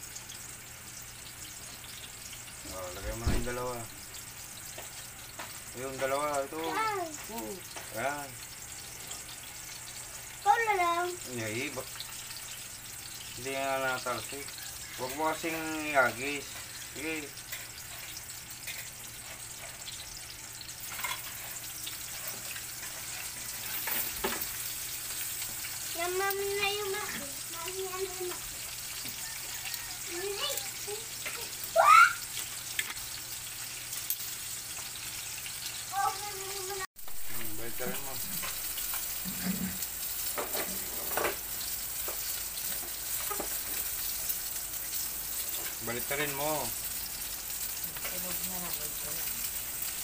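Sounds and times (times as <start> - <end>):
fish frying in hot oil: 0.0 - 50.0
metal utensil scraping pan: 17.5 - 20.0, 20.8 - 25.2, 37.1 - 41.4.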